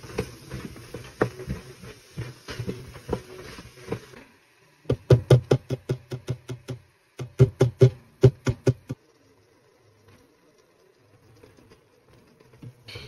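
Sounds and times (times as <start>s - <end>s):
wooden spatula stirring in steel pot: 0.0s - 4.2s.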